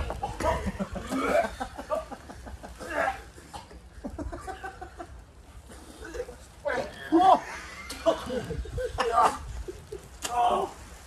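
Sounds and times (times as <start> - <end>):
men coughing: 0.1 - 2.1, 2.8 - 4.9
men making disgusted vocal noises: 0.3 - 2.0, 2.8 - 3.8, 5.7 - 11.0.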